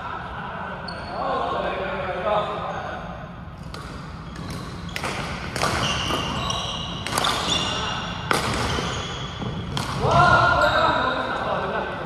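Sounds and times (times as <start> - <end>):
rackets hitting shuttlecock: 3.6 - 10.2
shoes squeaking on floor: 4.2 - 9.8.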